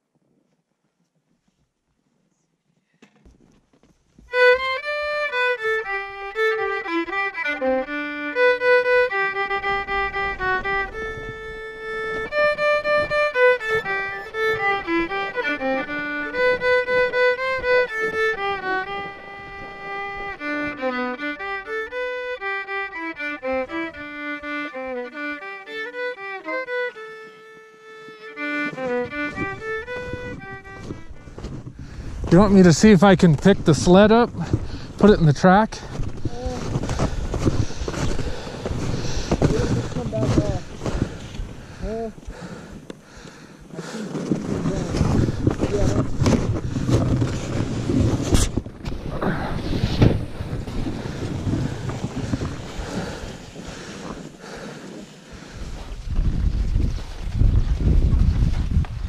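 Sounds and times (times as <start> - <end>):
fiddle playing quick melody: 4.3 - 34.3.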